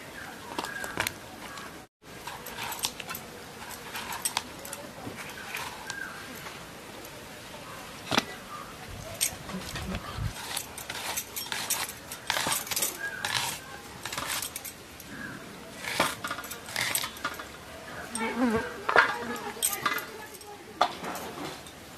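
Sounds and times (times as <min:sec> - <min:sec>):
blade cutting vegetables: 0:10.3 - 0:14.6
bangles jingling: 0:10.4 - 0:15.1, 0:19.2 - 0:20.6.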